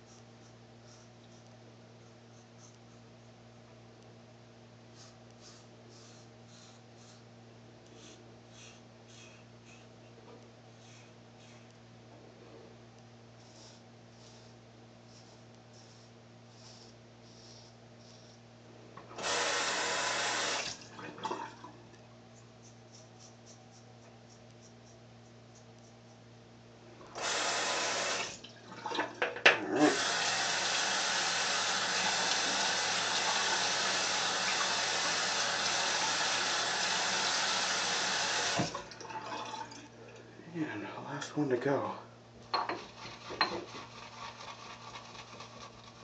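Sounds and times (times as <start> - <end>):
tap water running into basin: 27.2 - 39.9.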